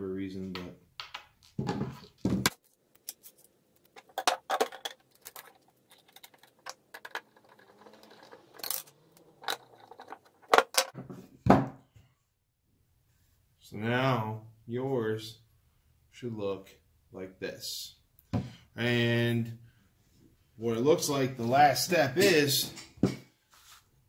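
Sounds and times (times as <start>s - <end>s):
plastic parts knocking on workbench: 1.0s - 2.6s, 4.0s - 11.8s
metal screws clicking: 3.0s - 10.9s.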